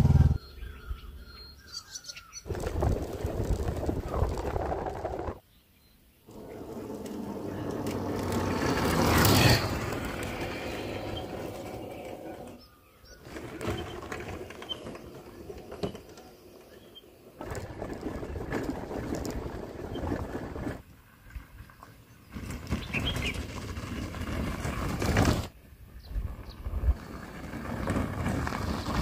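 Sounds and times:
motor scooter engine passing: 0:00.0 - 0:00.7, 0:06.3 - 0:15.4, 0:26.4 - 0:29.0.

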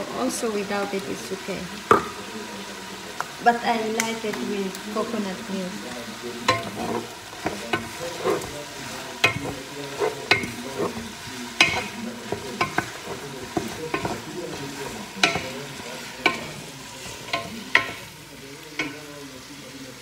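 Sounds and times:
food sizzling in a wok: 0:00.0 - 0:20.0
utensil knocking and scraping pan: 0:06.4 - 0:19.1.

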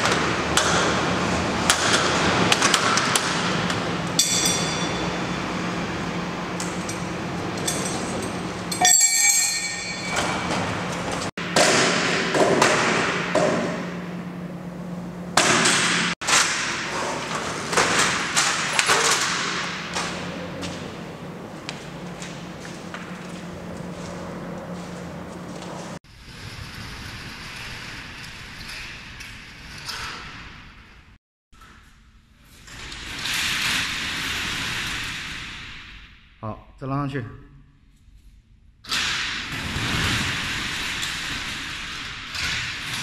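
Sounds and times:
roller shutter door rattling: 0:00.0 - 0:08.8, 0:09.8 - 0:11.3, 0:15.7 - 0:31.0, 0:32.6 - 0:35.9, 0:38.9 - 0:43.0.

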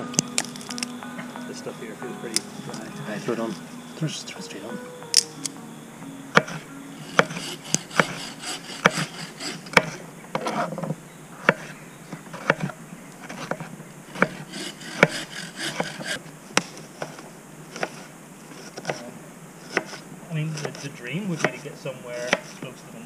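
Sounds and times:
knife scraping board: 0:07.1 - 0:10.8, 0:19.6 - 0:20.0, 0:22.2 - 0:22.6.

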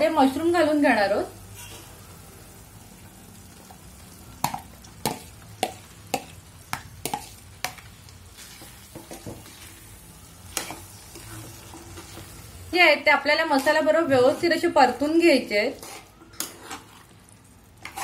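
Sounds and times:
sauce sizzling: 0:00.0 - 0:18.0
metal spatula tapping pan: 0:04.4 - 0:07.8.

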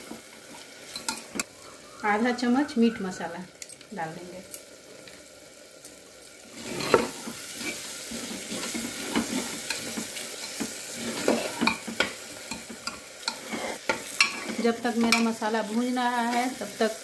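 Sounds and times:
masala sizzling: 0:00.0 - 0:17.0
metal ladle scraping a pot: 0:06.6 - 0:11.8.

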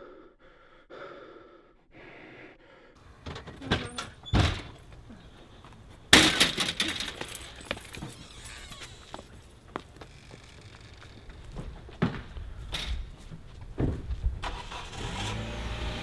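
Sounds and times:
door banging and rattling: 0:03.2 - 0:04.8, 0:06.1 - 0:08.8.

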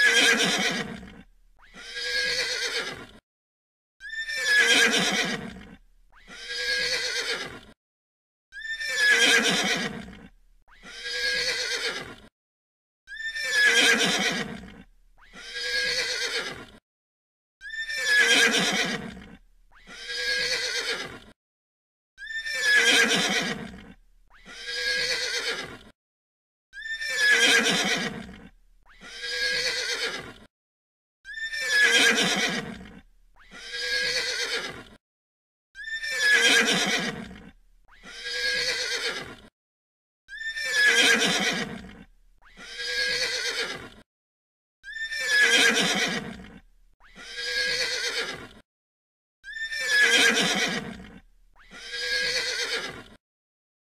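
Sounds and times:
horse whinnying: 0:00.0 - 0:03.0, 0:04.0 - 0:07.7, 0:08.5 - 0:12.1, 0:13.1 - 0:16.6, 0:17.6 - 0:21.2, 0:22.2 - 0:25.8, 0:26.8 - 0:30.3, 0:31.3 - 0:34.8, 0:35.8 - 0:39.3, 0:40.3 - 0:43.8, 0:44.8 - 0:48.5, 0:49.4 - 0:53.0.

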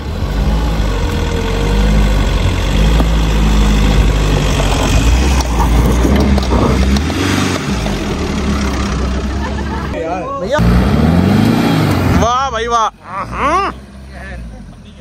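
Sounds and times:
diesel engine idling low: 0:00.0 - 0:05.2.

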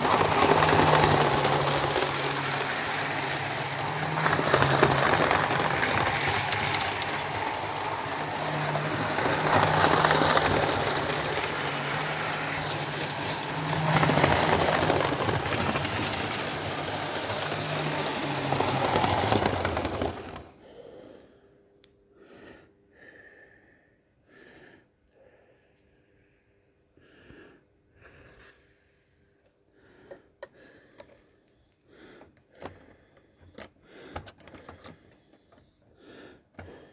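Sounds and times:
model train motor hum: 0:00.0 - 0:20.6
wheels rattling over track joints: 0:00.0 - 0:20.6.

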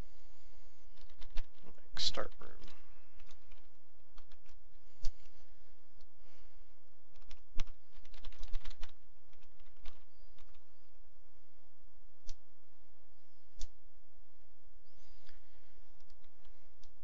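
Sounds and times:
typing on computer keyboard: 0:00.9 - 0:01.6, 0:02.5 - 0:05.1, 0:07.1 - 0:10.7, 0:16.0 - 0:17.0.

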